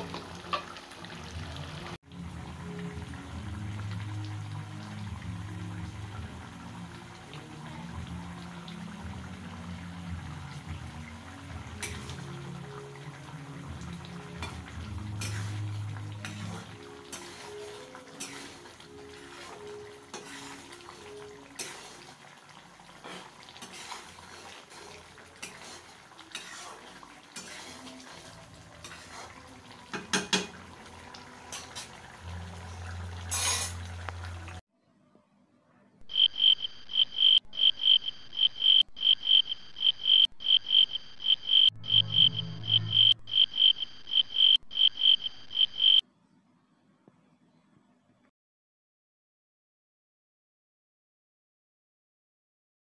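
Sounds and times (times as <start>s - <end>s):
curry bubbling: 0.0s - 34.6s
spatula scraping a pan: 14.4s - 22.2s, 23.0s - 30.6s, 33.2s - 34.0s
high chirping: 36.1s - 46.0s.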